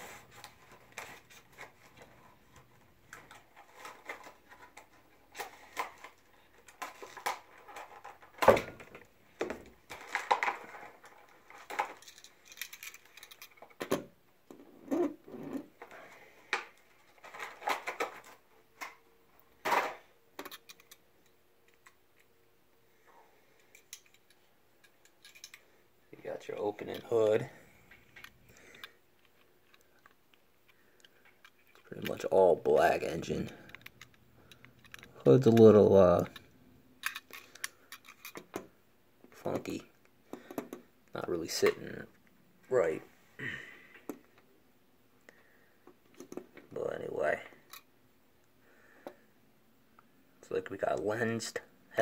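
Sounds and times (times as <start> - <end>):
faint steady hum: 0.0 - 52.0
hands handling toy car: 0.2 - 13.8, 16.5 - 19.0, 26.7 - 38.6.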